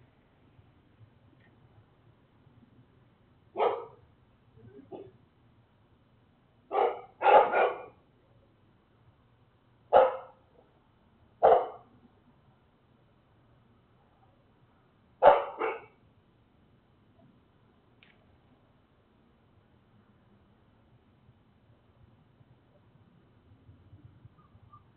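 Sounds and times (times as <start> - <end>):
dog barking: 3.6 - 4.0, 4.9 - 5.1, 6.7 - 8.0, 9.9 - 10.4, 11.4 - 11.9, 15.2 - 16.0.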